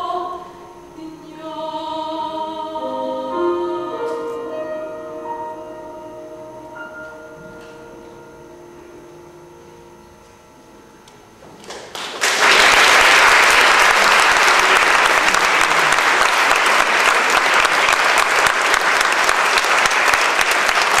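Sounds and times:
faint lingering chord: 2.2 - 11.4
audience applause: 11.6 - 21.0.

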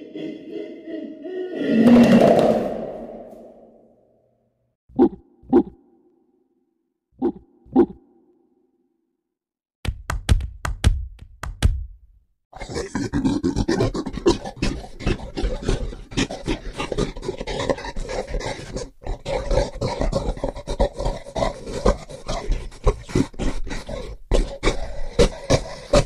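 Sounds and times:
gorilla sounds: 0.0 - 3.7, 12.6 - 26.0.

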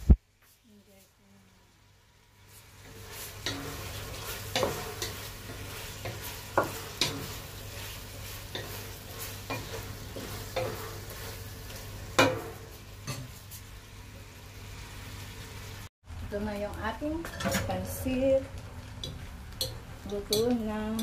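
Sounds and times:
food sizzling: 0.0 - 21.0
wooden spoon scraping a pot: 2.6 - 11.9.

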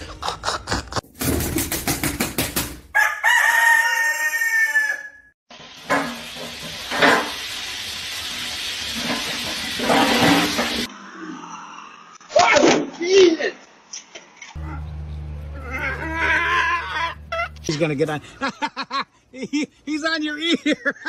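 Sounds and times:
rooster crowing: 2.9 - 5.3.

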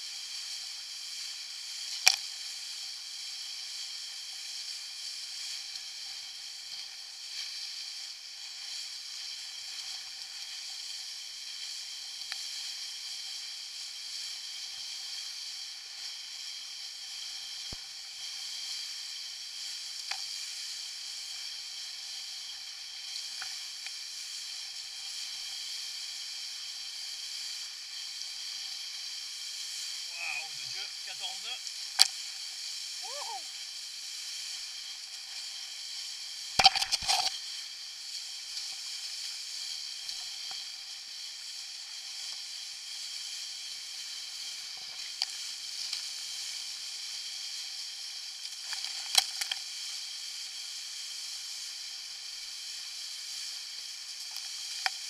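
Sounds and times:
faint ticks: 2.0 - 2.3, 20.0 - 20.3, 23.1 - 24.0, 31.9 - 32.2, 44.8 - 46.1, 54.2 - 55.0.

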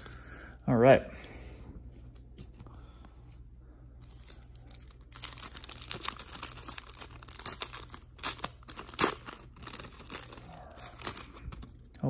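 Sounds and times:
card pack wrapper crinkling: 4.1 - 11.9.

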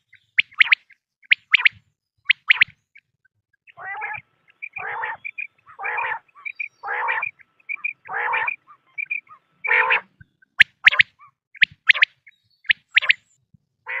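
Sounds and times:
quail calling: 3.7 - 13.2.

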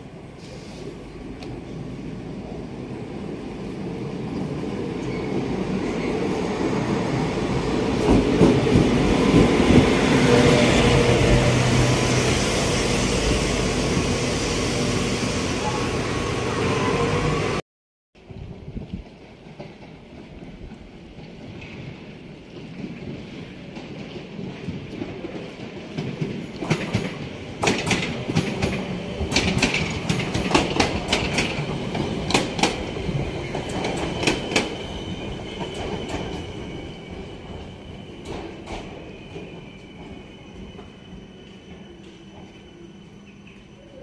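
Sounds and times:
train rumble: 18.2 - 42.8
wheels clacking over rail joints: 19.1 - 34.8.

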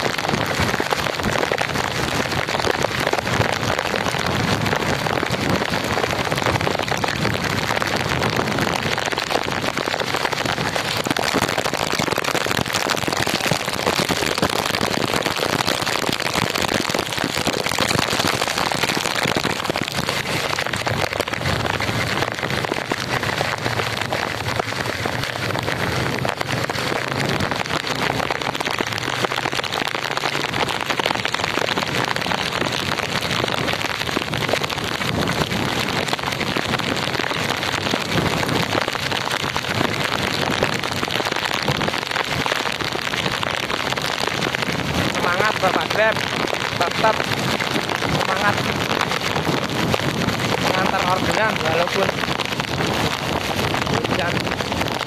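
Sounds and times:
heavy rain on wet road: 0.0 - 55.0.

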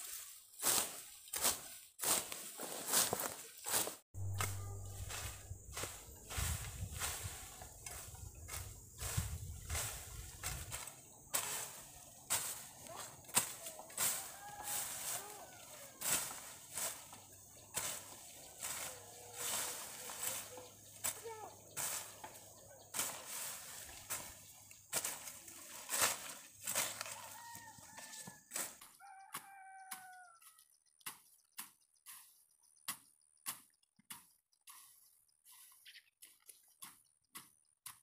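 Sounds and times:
chickens clucking: 4.3 - 32.2
rooster crowing: 13.9 - 16.4, 27.0 - 30.6.

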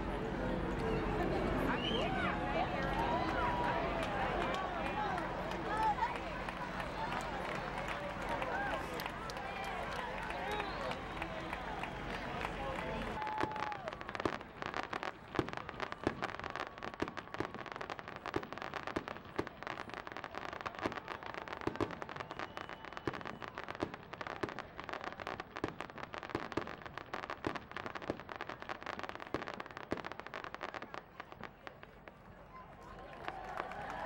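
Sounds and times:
fireworks crackling: 0.0 - 34.0
loud firework pops: 13.2 - 32.2.

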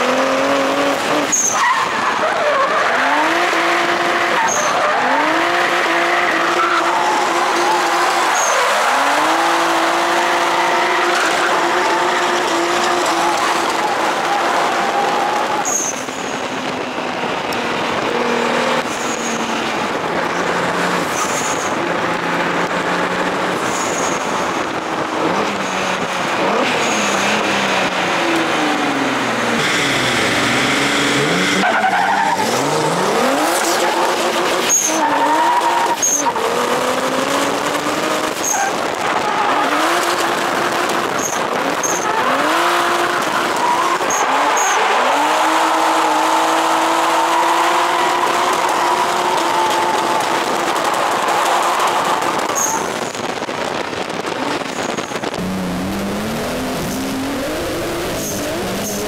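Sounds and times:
car engine revving hard: 0.0 - 59.0
tyres screeching: 29.5 - 53.1.

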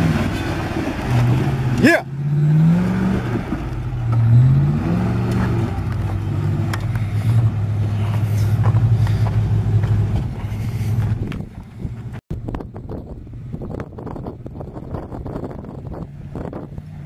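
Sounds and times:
suv engine revving: 0.0 - 12.2.

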